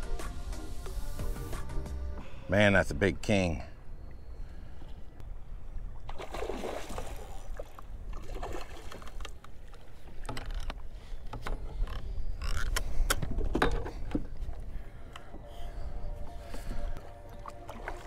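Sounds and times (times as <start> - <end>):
water sloshing against hull: 3.8 - 18.0.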